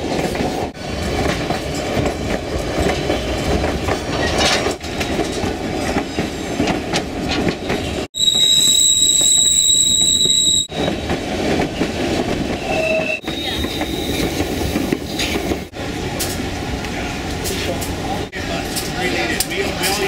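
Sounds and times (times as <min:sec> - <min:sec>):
train wheels clattering on rails: 0:00.0 - 0:08.5, 0:10.2 - 0:20.0
high wheel squeal: 0:08.1 - 0:11.0, 0:12.6 - 0:14.4.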